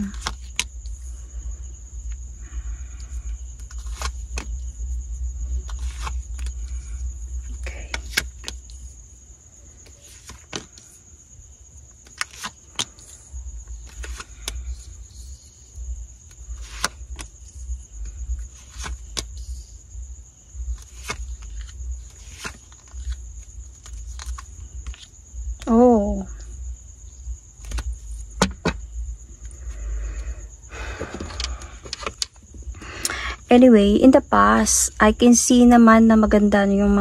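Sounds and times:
cards slapping on table: 16.6 - 17.3.

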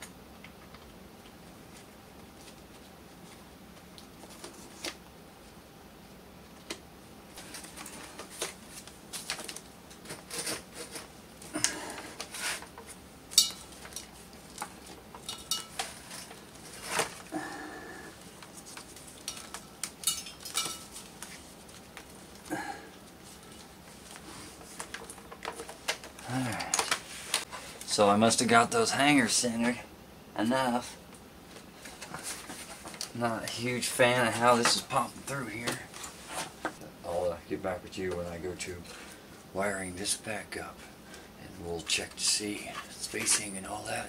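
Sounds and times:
clicks and knocks of handling parts: 7.4 - 17.3, 18.4 - 22.5, 23.5 - 27.5.

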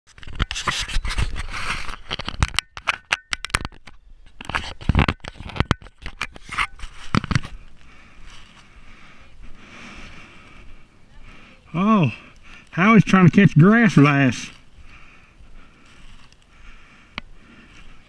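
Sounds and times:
hands handling camera: 0.2 - 7.6.

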